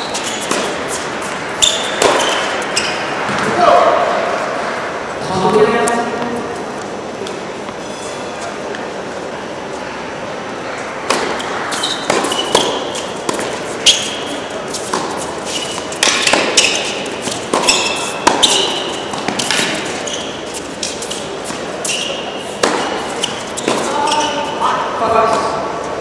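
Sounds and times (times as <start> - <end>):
shoes squeaking on court: 0.0 - 3.5, 7.7 - 8.6, 11.0 - 25.5
rackets hitting tennis ball: 0.0 - 3.9, 10.9 - 25.5
ball bouncing: 0.4 - 3.5, 11.0 - 14.1, 14.8 - 19.9, 22.6 - 24.2.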